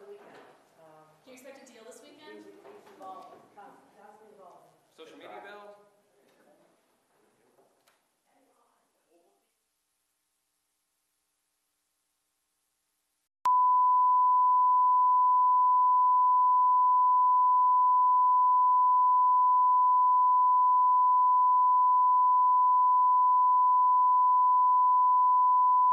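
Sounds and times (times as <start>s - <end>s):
steady pure test tone beep: 13.4s - 25.9s.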